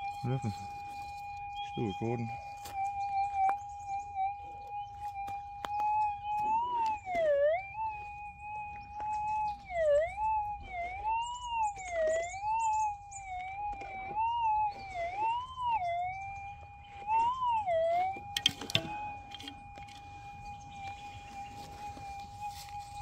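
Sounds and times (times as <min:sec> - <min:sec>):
metal detector warbling tone: 0:00.0 - 0:23.0
sharp clicks: 0:17.0 - 0:21.0.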